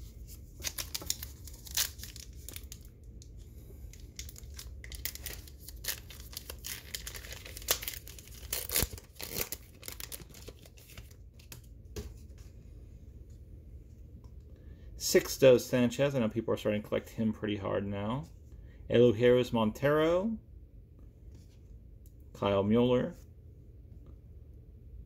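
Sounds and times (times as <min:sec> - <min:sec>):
wrapper tearing and crinkling: 0:00.6 - 0:02.9, 0:03.9 - 0:11.2.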